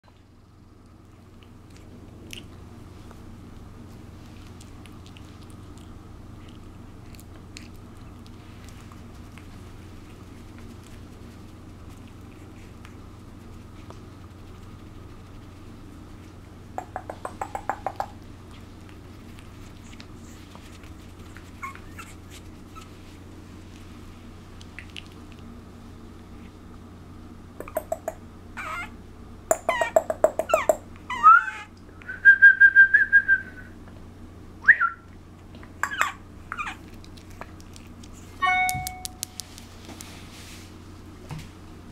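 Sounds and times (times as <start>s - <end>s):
low room hum: 0.0s - 41.9s
puppy teeth clicking: 16.8s - 18.2s, 24.6s - 25.5s, 27.6s - 28.2s, 29.5s - 30.8s, 35.5s - 39.7s
puppy squeaking and yipping: 21.3s - 23.0s, 28.6s - 31.8s, 35.8s - 36.9s.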